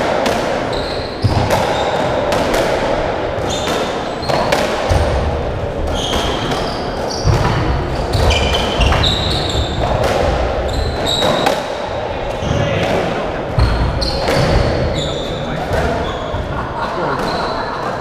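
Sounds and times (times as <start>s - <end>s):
shoes squeaking on wooden floor: 5.9s - 7.5s, 8.1s - 9.8s, 10.6s - 11.5s.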